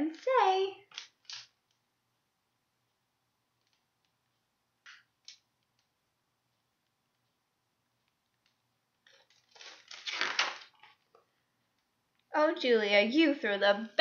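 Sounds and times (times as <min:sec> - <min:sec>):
faint low hum: 0:00.0 - 0:10.0
paper book rustling: 0:08.2 - 0:11.2.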